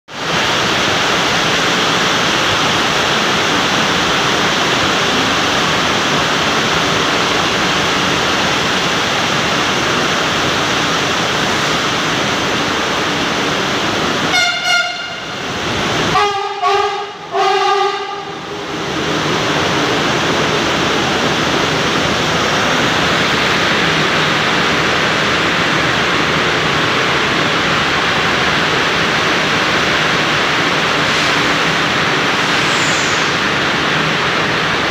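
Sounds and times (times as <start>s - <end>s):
heavy rain falling: 0.1s - 34.9s
train horn blasts: 14.3s - 15.5s, 16.1s - 18.4s.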